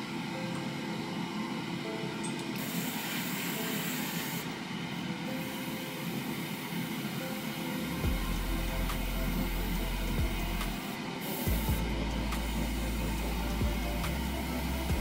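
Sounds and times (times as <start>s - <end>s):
steady background noise: 0.0s - 15.0s
airbrush hissing: 2.6s - 4.6s, 5.3s - 15.0s
low hum: 11.5s - 15.0s.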